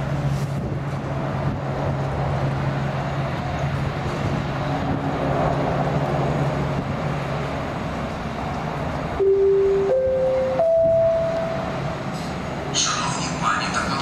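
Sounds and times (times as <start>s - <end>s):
helicopter rotor and turbine: 0.0s - 9.6s
constant low hum: 0.0s - 14.0s.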